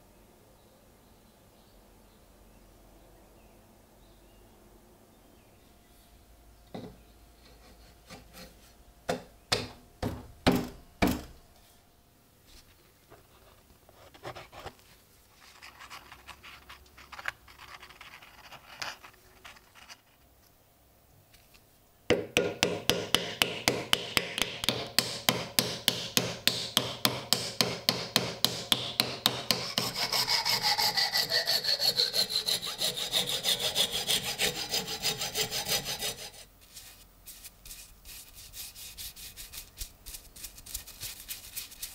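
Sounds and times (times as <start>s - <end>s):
sharp knocks of wood: 9.1s - 11.4s, 22.1s - 29.6s
hand saw cutting wood: 22.9s - 36.5s.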